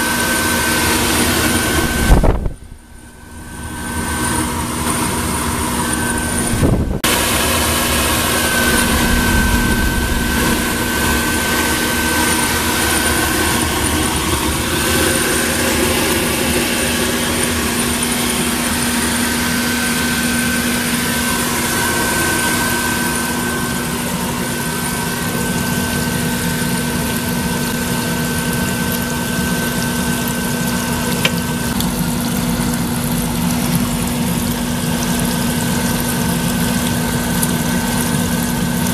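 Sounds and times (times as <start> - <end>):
electric blower motor humming: 0.0 - 32.8
water bubbling in tank: 1.3 - 38.9.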